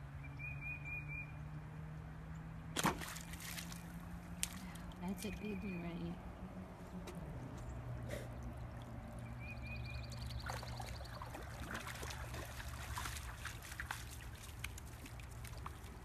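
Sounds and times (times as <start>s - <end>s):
dog splashing through water: 2.8s - 4.9s, 8.5s - 16.0s.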